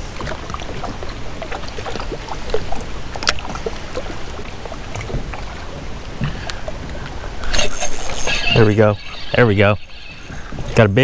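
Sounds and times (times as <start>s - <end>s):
water lapping against kayak: 0.0s - 11.0s.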